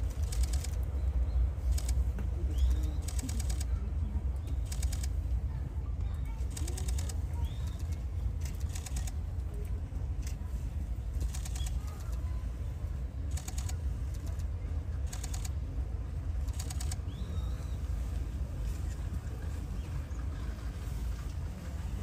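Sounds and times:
steady low rumble: 0.0s - 22.0s
faint bird chirps: 16.5s - 20.6s.

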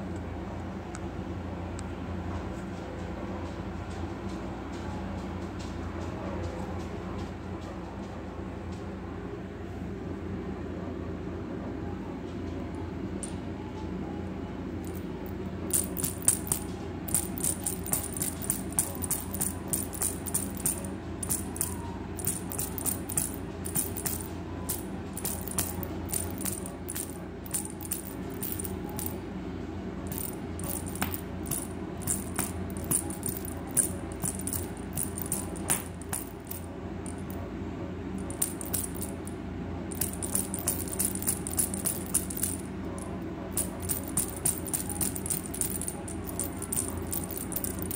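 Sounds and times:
toy clicking and rattling on floor: 14.8s - 29.2s, 30.1s - 37.4s, 38.2s - 39.3s, 39.9s - 47.9s
toy motor humming: 15.7s - 29.2s.

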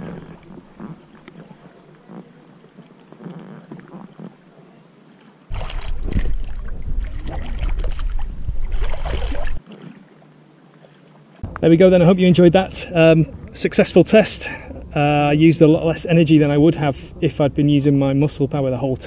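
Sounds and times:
water churning and splashing: 0.0s - 4.6s, 5.5s - 11.5s
deep rumble: 5.5s - 9.6s
paddle splashes and knocks: 5.5s - 10.2s.

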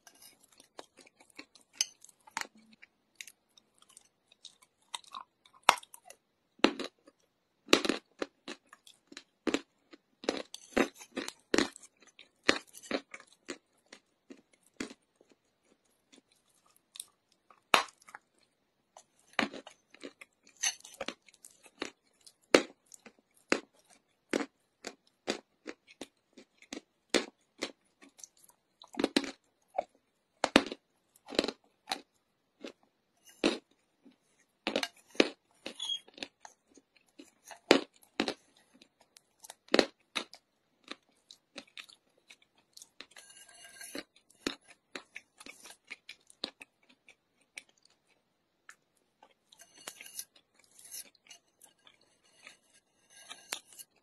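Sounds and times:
chalk being chewed: 40.8s - 54.0s.

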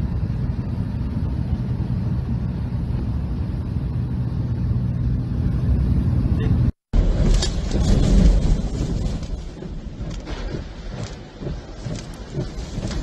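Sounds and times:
aircraft engine drone in cabin: 0.0s - 13.0s
loud rushing storm wind: 0.0s - 13.0s.

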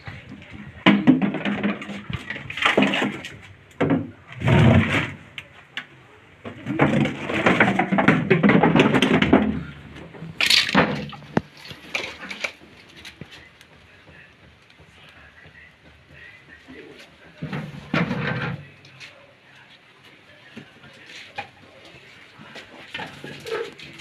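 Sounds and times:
containers scraping on concrete floor: 0.8s - 5.4s, 6.4s - 12.6s, 17.4s - 18.8s, 22.4s - 24.0s.

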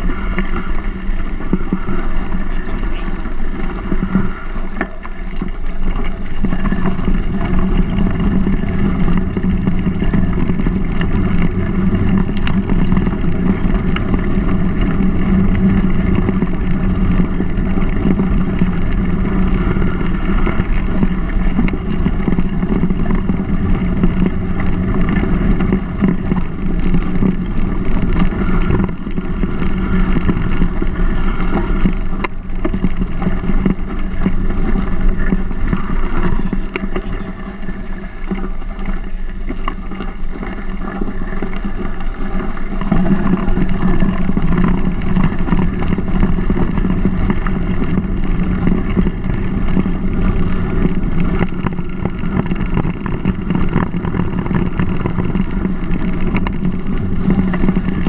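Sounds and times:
bike rolling on gravel: 0.0s - 58.0s
wind on microphone: 0.0s - 58.0s.

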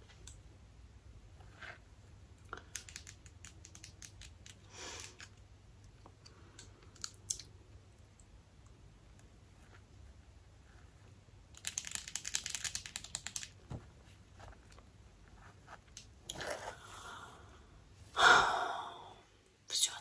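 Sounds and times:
hair clips clicking: 2.6s - 5.4s, 11.6s - 13.6s.

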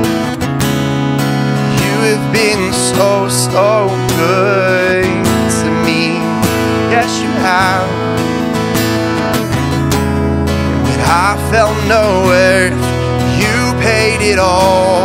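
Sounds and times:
acoustic guitars strumming: 0.0s - 15.0s
man singing with vibrato: 1.6s - 8.3s, 10.8s - 15.0s.

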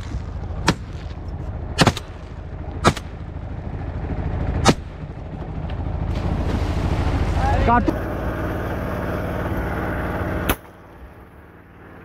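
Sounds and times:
low rumble: 0.0s - 12.0s
shotgun shots: 1.8s - 2.1s, 2.8s - 3.1s.

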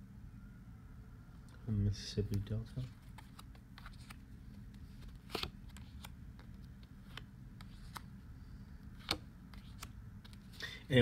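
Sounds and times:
cards tapping and sliding: 2.3s - 8.1s, 8.9s - 10.6s.

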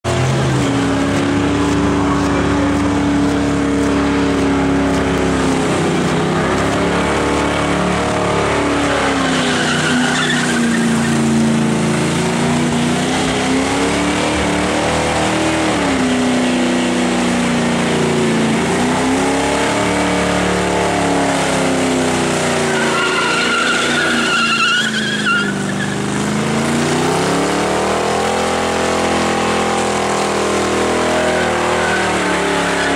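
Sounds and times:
engine revving high: 0.0s - 32.9s
tyre squeal: 6.4s - 11.4s, 22.2s - 26.2s, 30.9s - 32.9s.

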